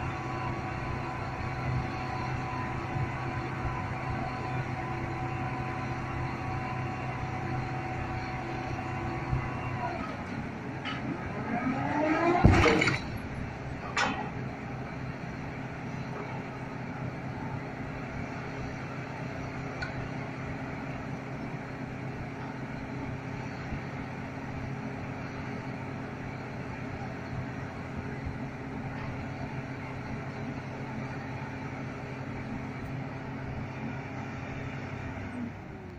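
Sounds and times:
crane diesel engine running: 0.0 - 35.9
heavy weight thud on ground: 12.4 - 13.2
sharp metal clank: 12.4 - 13.2.

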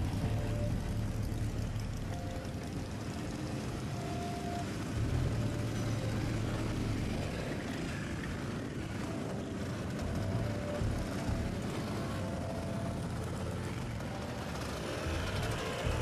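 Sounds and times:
motorcycles riding past: 0.0 - 16.0.

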